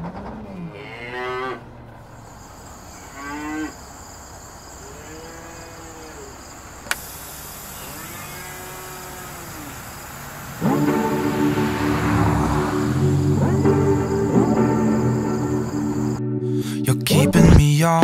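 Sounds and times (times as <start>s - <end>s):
cattle mooing: 0.6s - 2.0s, 3.0s - 3.8s, 4.8s - 6.4s, 7.8s - 14.3s
sharp click: 6.8s - 7.1s.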